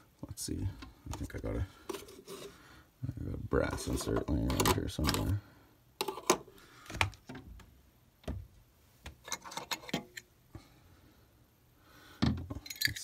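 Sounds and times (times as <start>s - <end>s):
small metal objects clinking: 12.5s - 13.0s.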